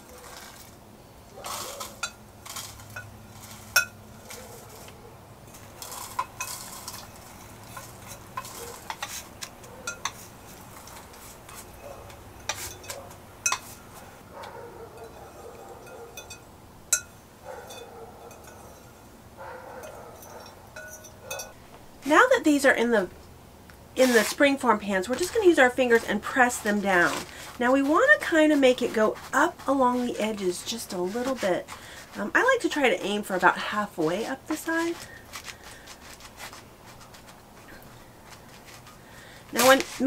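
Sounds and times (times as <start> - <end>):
metal spoon scraping glass bowl: 5.5 - 14.0, 15.0 - 19.0, 24.0 - 33.2
sharp metal clinks: 19.8 - 21.6.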